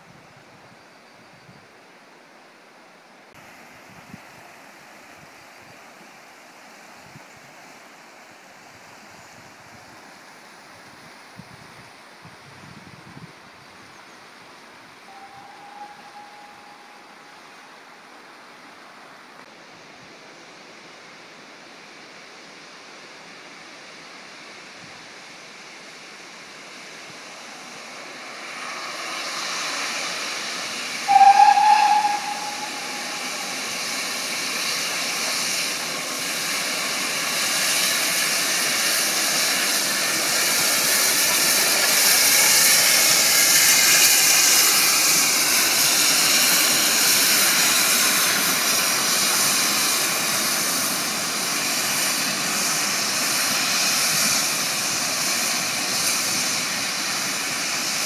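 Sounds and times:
faint river rushing: 0.0s - 58.0s
steam locomotive hissing: 15.0s - 17.7s, 24.0s - 58.0s
steam whistle blast: 15.1s - 17.4s, 30.9s - 34.2s.

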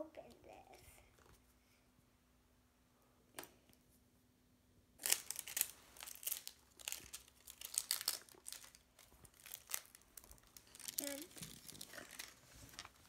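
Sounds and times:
plastic packaging crinkling: 5.0s - 13.0s.

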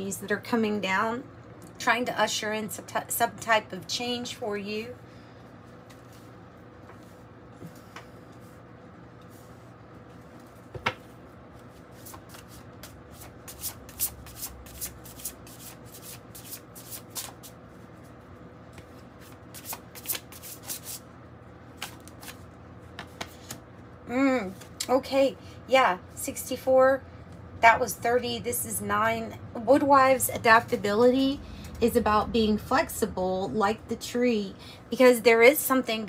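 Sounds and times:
faint steady hum: 0.0s - 36.0s
cards being shuffled: 10.3s - 17.6s, 18.8s - 21.0s, 21.8s - 23.6s.

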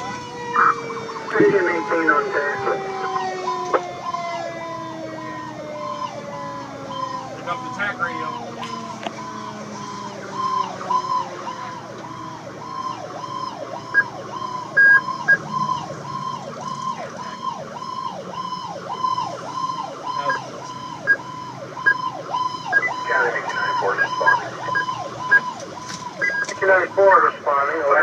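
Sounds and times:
low siren tone winding down: 0.0s - 28.0s
siren yelping: 0.0s - 28.0s
truck engine running: 0.0s - 28.0s.

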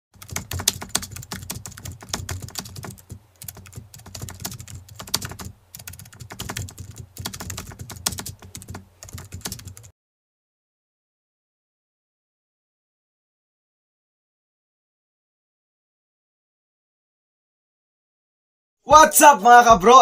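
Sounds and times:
computer keyboard typing: 0.2s - 9.9s.

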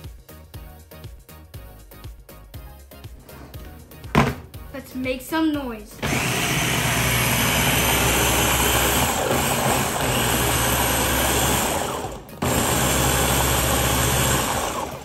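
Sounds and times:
food chopper motor running: 6.0s - 15.0s.

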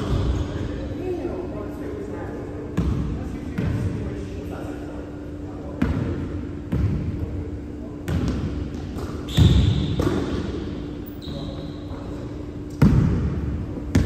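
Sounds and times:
sneakers squeaking on floor: 8.1s - 13.0s
basketball bouncing on hardwood floor: 12.8s - 13.2s.

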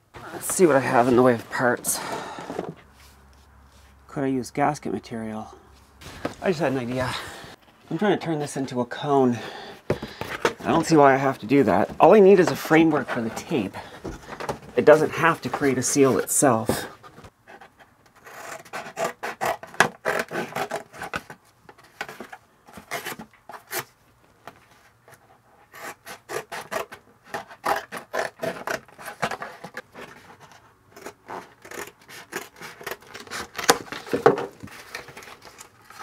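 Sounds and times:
cardboard rasping by hand: 18.2s - 21.3s, 25.7s - 36.0s.

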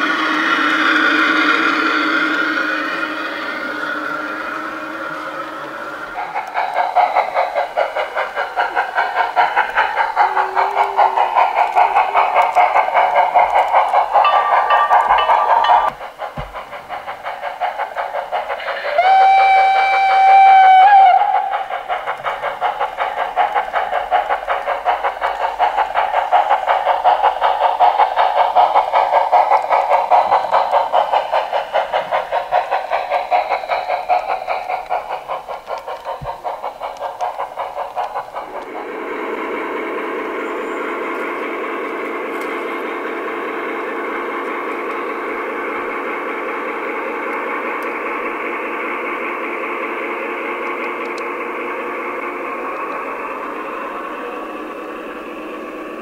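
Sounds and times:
steady engine drone: 0.0s - 18.9s
model steam locomotive chuffing: 0.0s - 56.0s
locomotive whistle blast: 18.8s - 21.5s.

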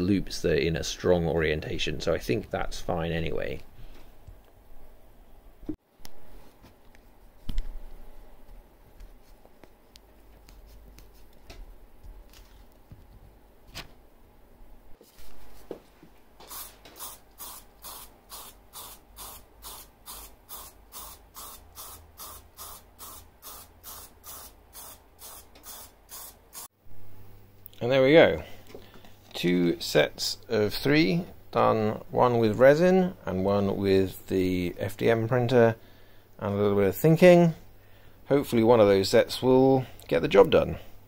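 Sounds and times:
spray can hissing bursts: 16.4s - 26.7s.

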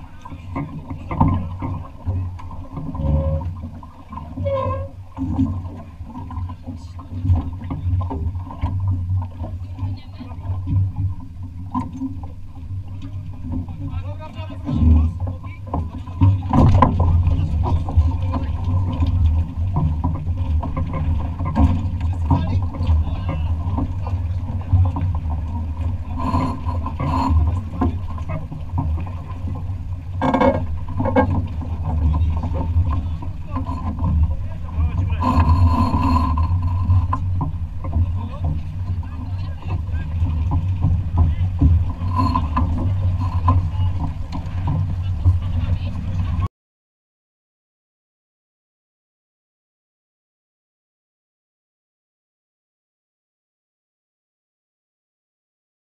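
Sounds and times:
water washing along hull: 0.0s - 46.5s
wind buffeting microphone: 16.0s - 46.5s.

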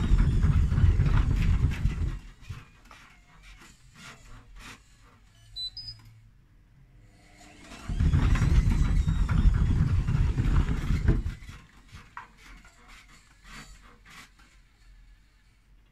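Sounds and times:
washing machine rumbling and knocking: 0.0s - 2.7s, 7.7s - 13.6s.

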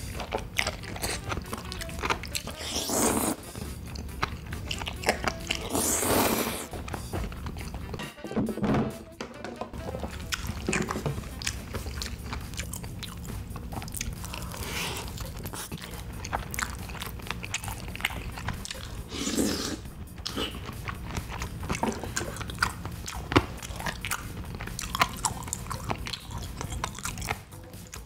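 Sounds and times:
wet chewing: 0.0s - 8.0s, 9.7s - 28.0s.

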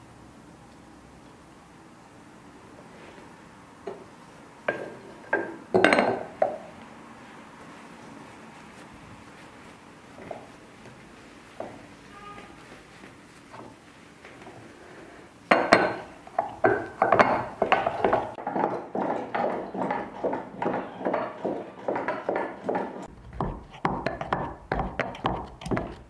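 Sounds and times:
butter churn knocking and splashing: 15.5s - 26.0s.

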